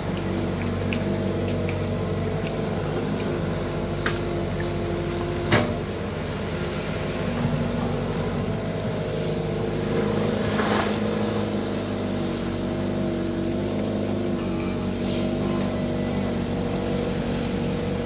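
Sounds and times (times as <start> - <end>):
rush of water: 0.0 - 12.9
excavator diesel engine running: 0.0 - 18.0.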